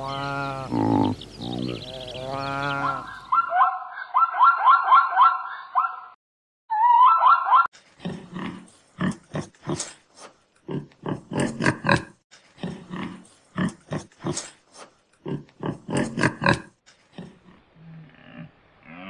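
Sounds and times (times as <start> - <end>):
warthog grunting: 0.0 - 3.1, 10.7 - 14.6, 15.2 - 19.0.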